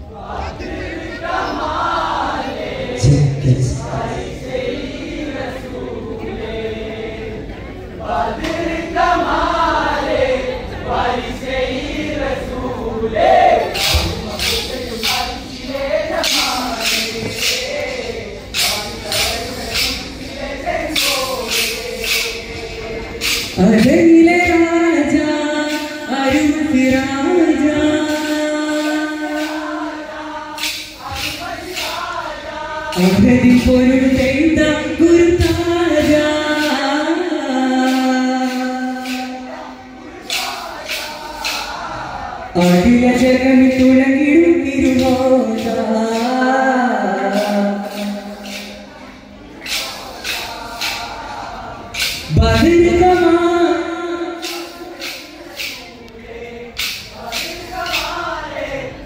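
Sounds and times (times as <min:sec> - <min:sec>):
men chanting a song together: 0:08.0 - 0:23.6, 0:28.8 - 0:34.5, 0:35.5 - 0:42.9, 0:46.1 - 0:59.0
person singing long held notes: 0:13.6 - 0:49.0
wooden sticks clacking: 0:13.7 - 0:23.6, 0:30.6 - 0:32.1, 0:37.8 - 0:39.4, 0:40.2 - 0:42.0, 0:49.6 - 0:52.3, 0:54.4 - 0:56.2, 0:56.8 - 0:58.2.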